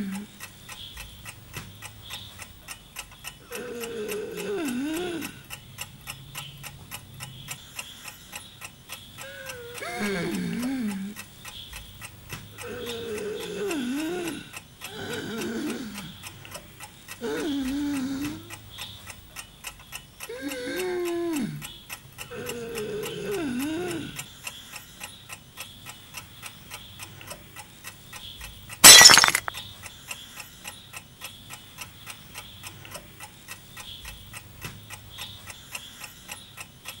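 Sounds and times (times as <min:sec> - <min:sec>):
loud crash of shattering: 0:28.8 - 0:29.5.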